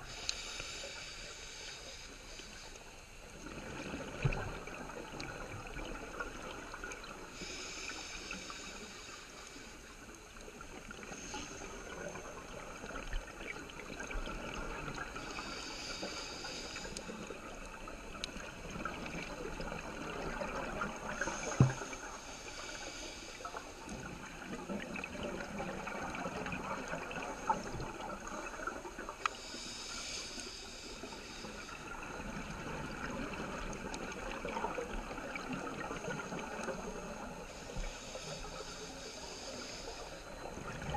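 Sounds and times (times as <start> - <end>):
diver inhaling through regulator: 0.0 - 2.9, 7.3 - 9.9, 15.2 - 17.4, 37.5 - 40.9
steady underwater hiss: 0.0 - 40.9.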